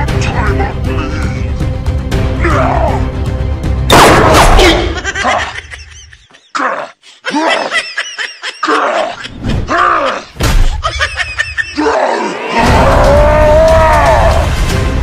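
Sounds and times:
comic voice groans and whoops: 0:06.5 - 0:07.8, 0:08.6 - 0:10.4, 0:11.7 - 0:14.6.

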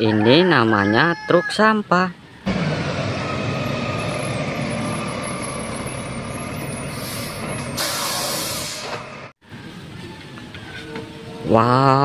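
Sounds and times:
diesel garbage truck running: 0:02.2 - 0:11.4
air brakes hissing: 0:06.7 - 0:09.2.

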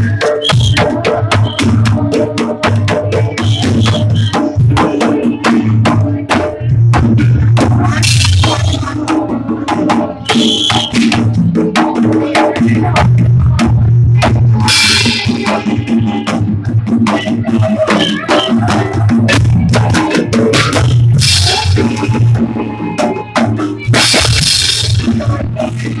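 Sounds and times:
drums beating busy rhythm: 0:00.0 - 0:26.0.

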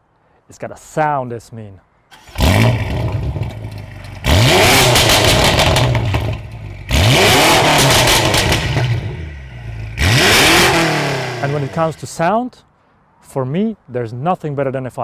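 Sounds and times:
car engine revving: 0:02.2 - 0:12.0.

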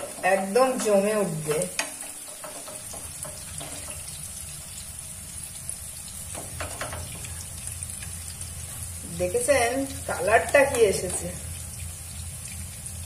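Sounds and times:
wooden spatula scraping pan: 0:00.0 - 0:04.2
food sizzling in oil: 0:00.0 - 0:13.0.

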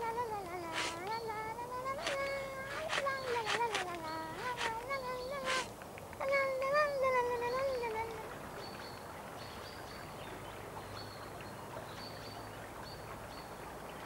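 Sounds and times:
wavering animal cry: 0:00.6 - 0:01.1, 0:02.0 - 0:05.7.

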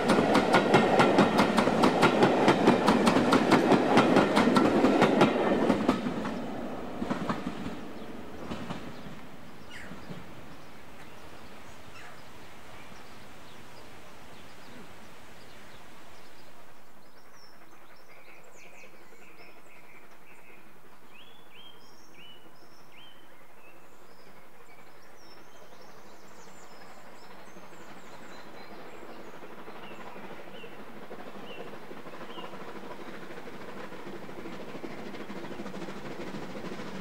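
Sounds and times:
small birds chirping: 0:06.2 - 0:33.3.

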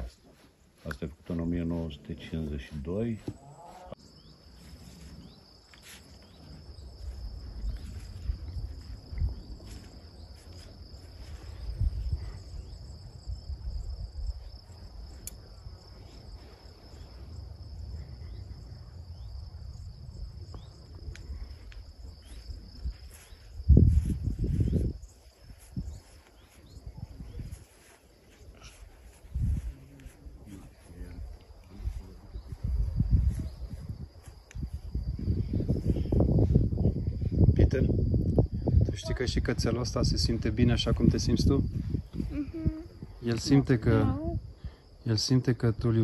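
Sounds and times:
insects chirring: 0:00.0 - 0:46.0.

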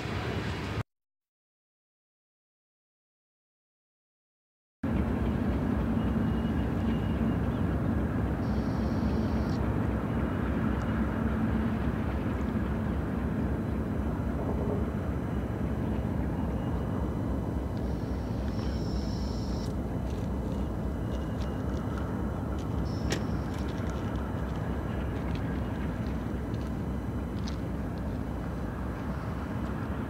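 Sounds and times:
locomotive diesel engine drone: 0:00.0 - 0:00.8, 0:04.8 - 0:30.0.

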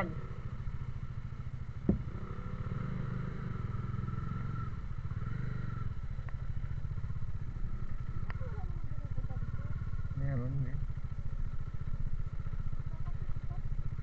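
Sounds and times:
motorcycle engines rumbling: 0:00.0 - 0:14.0
light ticks: 0:06.2 - 0:06.4.

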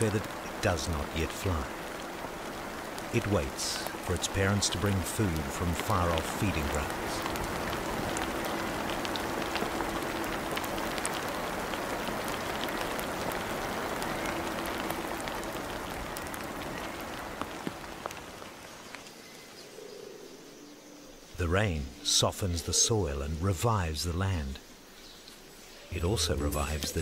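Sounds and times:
heavy rain on foliage: 0:00.0 - 0:27.0.

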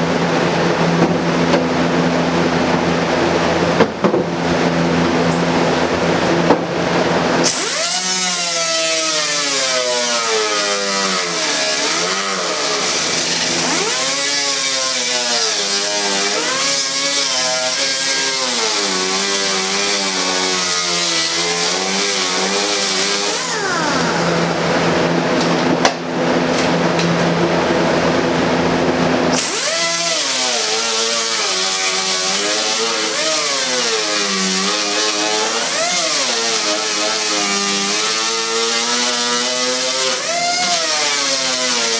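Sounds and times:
disc grinder whining: 0:22.2 - 0:25.1.

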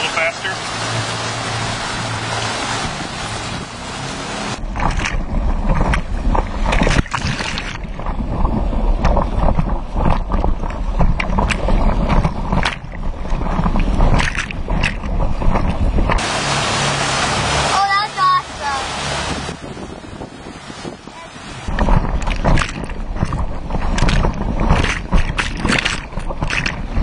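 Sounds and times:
motorboat engine drone: 0:00.0 - 0:27.0
water rushing and splashing: 0:00.0 - 0:27.0
wind rumble: 0:00.0 - 0:27.0.

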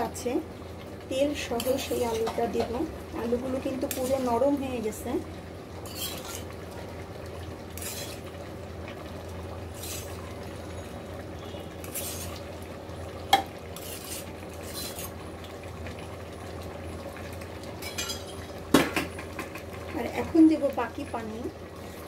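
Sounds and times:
ladle scraping and clinking metal: 0:05.8 - 0:06.5, 0:07.8 - 0:08.3, 0:09.8 - 0:10.2, 0:11.8 - 0:12.4.

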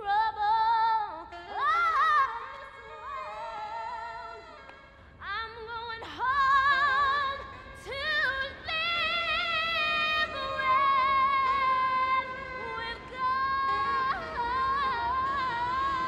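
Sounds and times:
woman singing gospel: 0:05.2 - 0:16.0.

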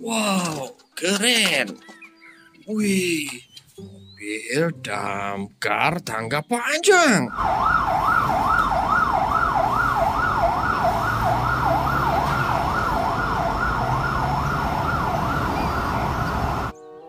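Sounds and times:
fire engine siren yelping: 0:07.3 - 0:16.7
truck engine rumble: 0:07.3 - 0:16.7.

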